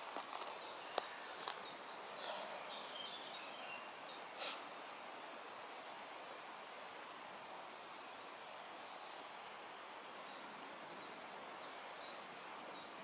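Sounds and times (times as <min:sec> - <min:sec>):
songbird chirping: 0:00.0 - 0:06.1, 0:10.2 - 0:13.0.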